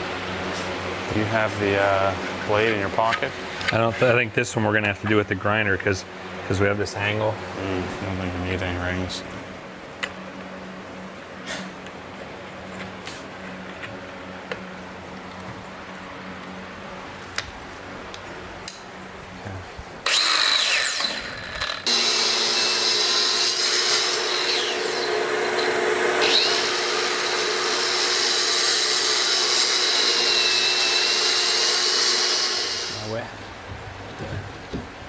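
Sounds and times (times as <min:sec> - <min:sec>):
angle grinder cutting board: 0:20.1 - 0:33.2.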